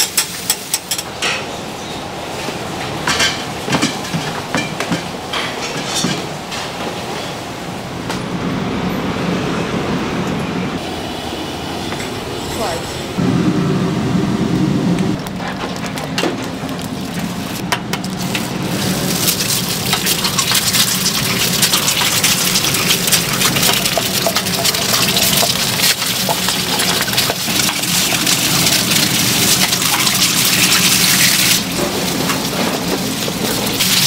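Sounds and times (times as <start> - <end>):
food sizzling on a griddle: 18.6 - 34.0.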